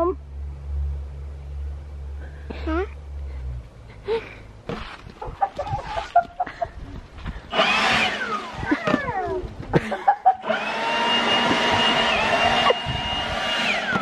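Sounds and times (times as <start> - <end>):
leaf blower whine: 7.4 - 14.0.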